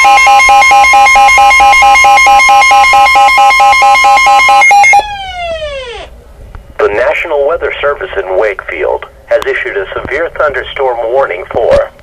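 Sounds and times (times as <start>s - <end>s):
rapid pulsing alarm beeps: 0.0s - 5.8s
steady alarm tone: 0.0s - 6.1s.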